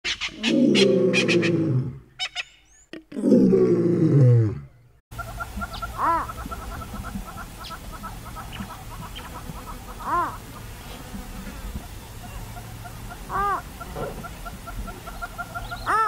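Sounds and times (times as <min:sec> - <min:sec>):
rising-and-falling animal call: 0:00.2 - 0:02.4, 0:05.2 - 0:10.4, 0:11.8 - 0:16.0
deep animal roars: 0:00.5 - 0:02.1, 0:03.2 - 0:04.8.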